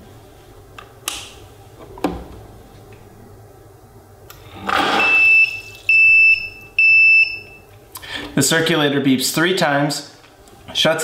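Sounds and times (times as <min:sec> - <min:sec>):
long high beeps: 0:05.0 - 0:07.6.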